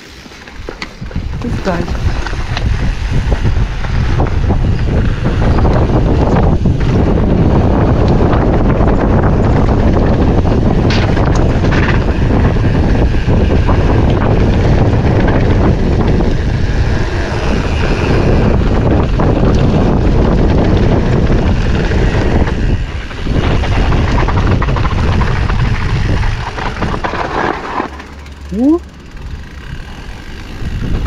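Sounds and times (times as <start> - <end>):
bike clattering over rough trail: 0.0 - 31.0
wind buffeting microphone: 0.6 - 31.0.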